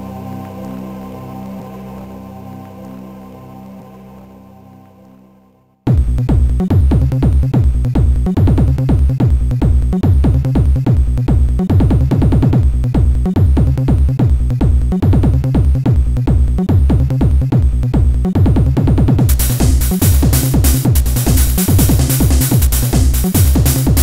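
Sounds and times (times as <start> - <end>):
fast electronic techno music: 5.9 - 24.0.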